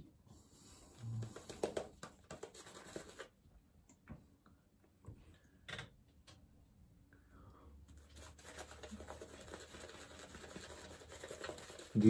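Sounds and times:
shaving brush swishing lather: 8.1s - 12.0s.

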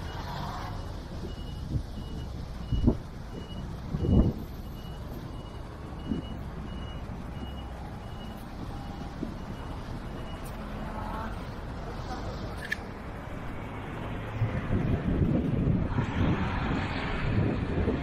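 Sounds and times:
reversing alarm beeping: 0.0s - 10.6s
road traffic rumble: 0.0s - 18.0s.

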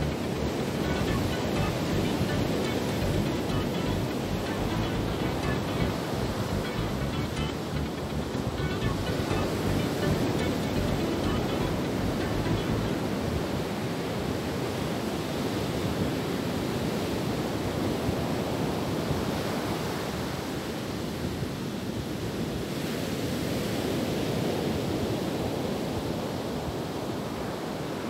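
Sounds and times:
ocean waves breaking: 0.0s - 20.7s.

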